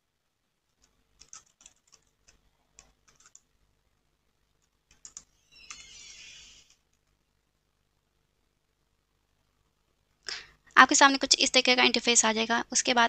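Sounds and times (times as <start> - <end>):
typing on a keyboard: 0.8 - 3.5, 4.6 - 5.9.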